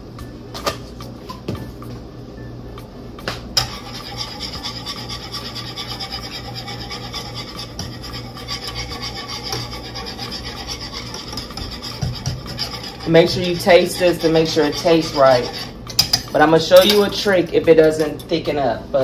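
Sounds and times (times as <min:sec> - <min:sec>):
steady low hum: 0:00.0 - 0:19.0
whisk scraping metal skillet: 0:03.6 - 0:18.4.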